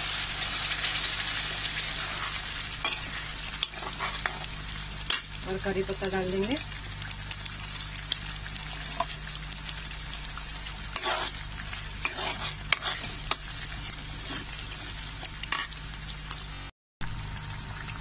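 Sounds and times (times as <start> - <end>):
gravy sizzling: 0.0 - 18.0
metal spoon scraping pan: 11.0 - 11.4, 12.0 - 13.4.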